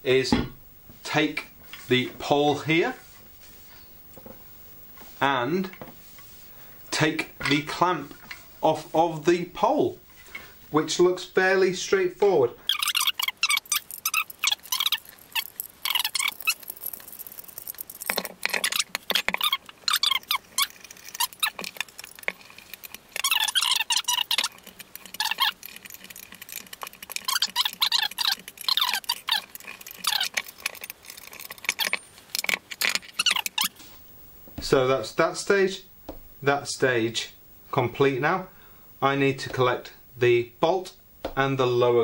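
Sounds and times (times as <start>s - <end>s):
metal clamp parts clinking: 28.5s - 33.6s.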